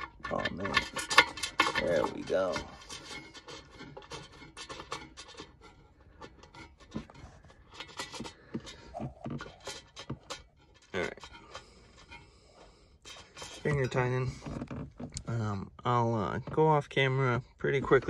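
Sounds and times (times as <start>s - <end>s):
bolts clicking and scraping: 0.0s - 18.0s.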